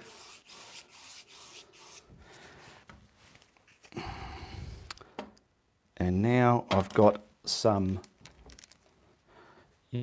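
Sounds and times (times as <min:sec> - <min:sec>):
paintbrush scrubbing on canvas: 0:00.0 - 0:02.1.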